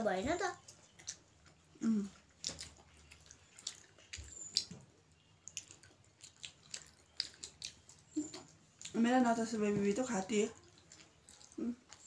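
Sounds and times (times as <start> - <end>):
wet chewing and lip-smacking: 0.6 - 9.2, 10.2 - 12.0.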